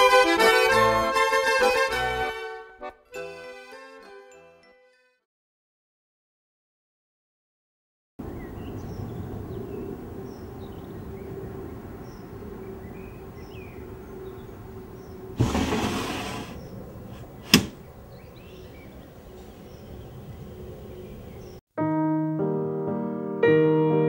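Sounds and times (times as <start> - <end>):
low ambience: 8.2 - 15.8, 16.5 - 21.6.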